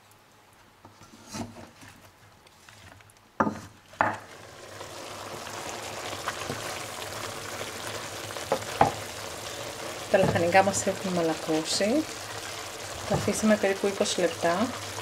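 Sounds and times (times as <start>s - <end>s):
vegetables sizzling in oil: 3.5s - 15.0s.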